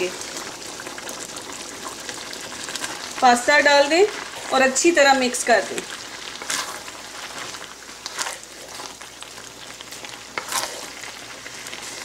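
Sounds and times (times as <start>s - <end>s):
sauce sizzling in a pan: 0.0s - 12.0s
wooden spatula stirring pasta: 5.8s - 12.0s.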